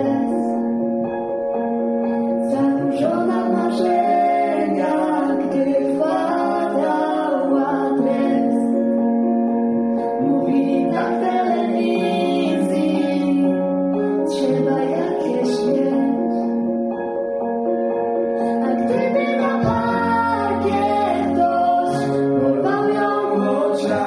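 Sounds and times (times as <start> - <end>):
girl singing into microphone: 18.4 - 24.0.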